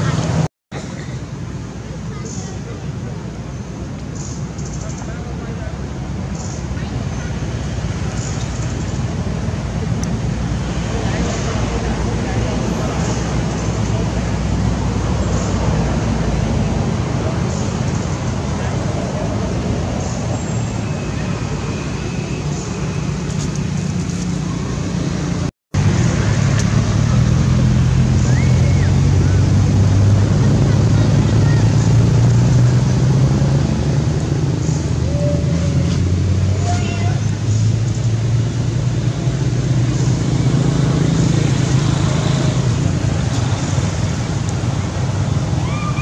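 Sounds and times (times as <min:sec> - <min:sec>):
outdoor rumble with engine hum: 0:00.0 - 0:46.0.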